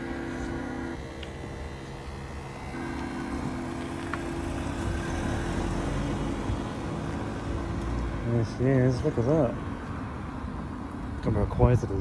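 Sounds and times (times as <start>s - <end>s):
held tones: 0.0s - 5.3s
low vehicle hum: 0.0s - 12.0s.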